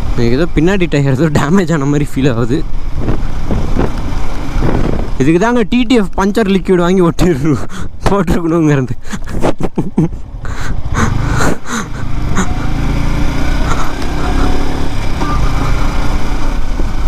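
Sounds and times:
motorcycle engine running: 0:00.0 - 0:06.7, 0:10.0 - 0:17.0.

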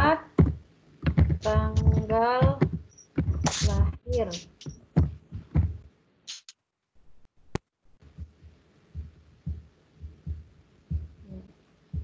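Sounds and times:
faint low thumps: 0:00.0 - 0:05.9, 0:08.0 - 0:12.0
sharp click: 0:03.0 - 0:04.8, 0:06.3 - 0:06.6.

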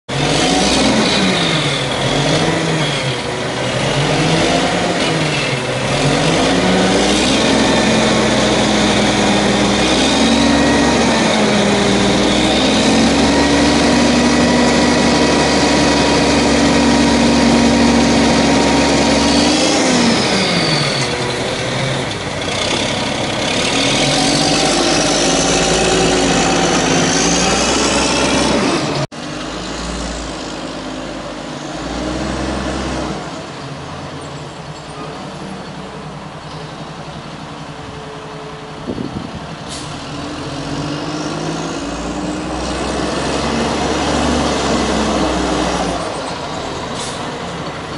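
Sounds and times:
truck engine revving: 0:00.1 - 0:34.2, 0:38.7 - 0:47.9.

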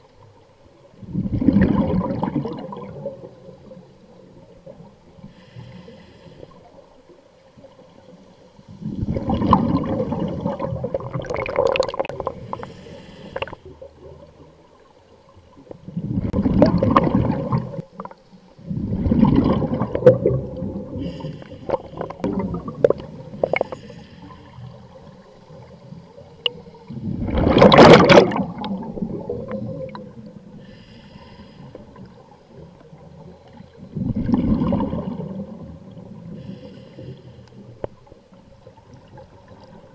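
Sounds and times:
gurgling exhaled bubbles underwater: 0:00.7 - 0:05.4, 0:06.5 - 0:30.6, 0:31.7 - 0:36.8
faint hiss of inhalation: 0:05.2 - 0:07.0, 0:12.4 - 0:13.7, 0:21.0 - 0:22.2, 0:23.3 - 0:24.8, 0:30.5 - 0:32.0, 0:36.3 - 0:37.7.

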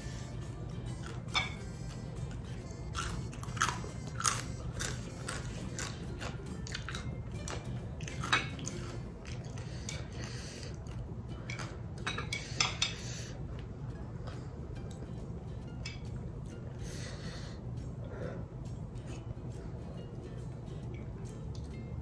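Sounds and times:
person chewing food: 0:00.9 - 0:15.1.

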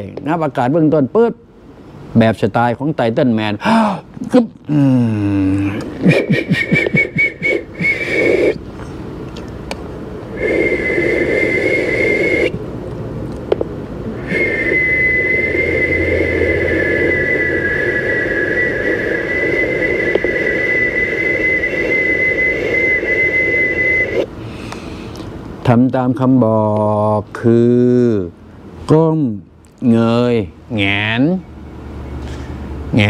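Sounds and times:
man whistling a high note: 0:06.1 - 0:08.6, 0:10.4 - 0:12.5, 0:14.2 - 0:24.3.

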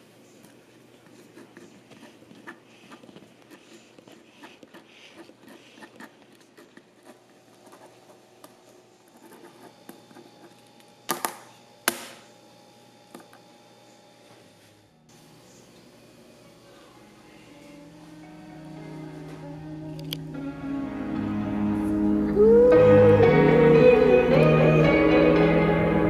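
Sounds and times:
pen scratching on paper: 0:01.0 - 0:08.2, 0:09.1 - 0:10.6.

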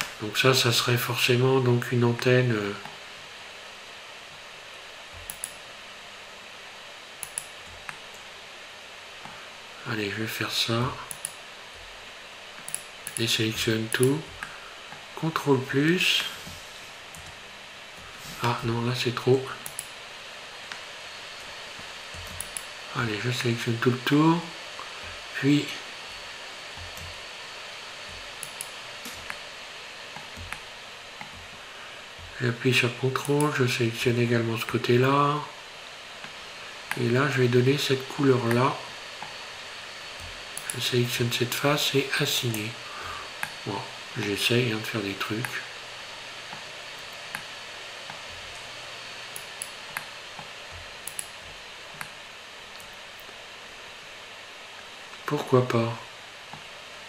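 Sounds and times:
background hiss: 0:00.0 - 0:57.0.

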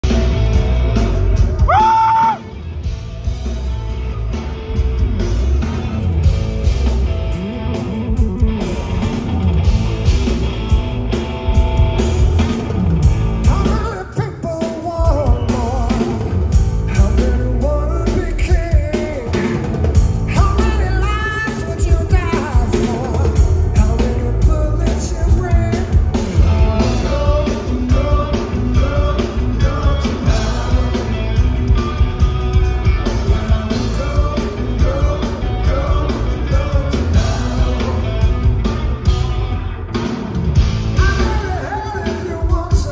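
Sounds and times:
rock band playing: 0:00.0 - 0:42.9
man singing lead vocal: 0:13.4 - 0:32.3, 0:32.9 - 0:38.8, 0:40.9 - 0:42.9.

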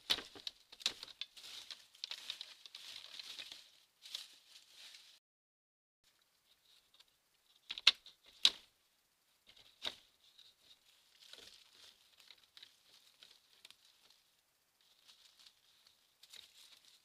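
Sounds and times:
animal scratching in soil and leaves: 0:10.4 - 0:17.0.

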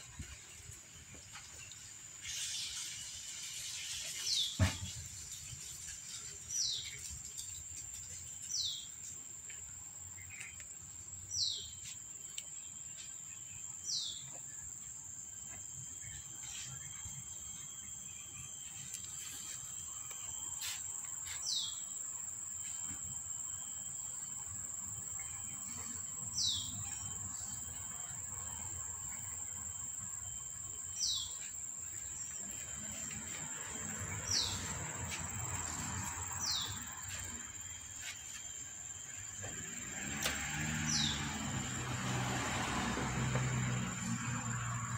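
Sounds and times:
bird chirping: 0:24.9 - 0:28.1, 0:29.0 - 0:38.1.

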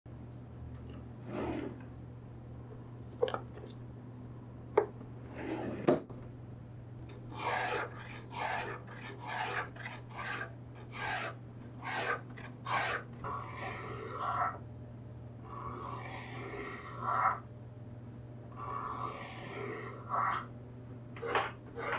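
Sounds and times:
hand plane rasping leather: 0:07.3 - 0:14.5, 0:21.2 - 0:21.9.

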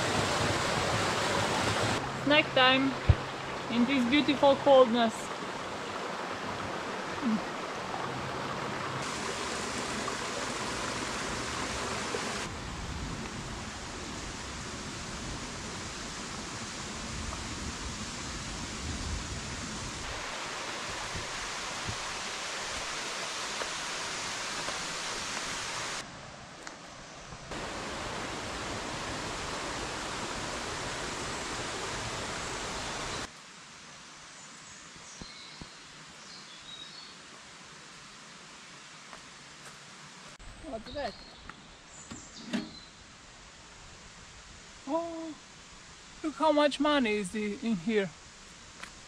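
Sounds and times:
river water rushing over rocks: 0:00.0 - 0:12.5, 0:20.0 - 0:26.4, 0:27.5 - 0:33.7.

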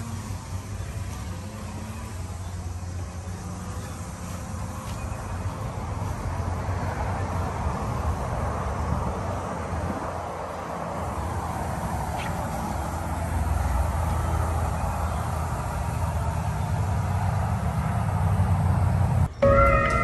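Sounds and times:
outdoor background rumble and hiss: 0:00.0 - 0:20.0
music: 0:19.4 - 0:20.0.

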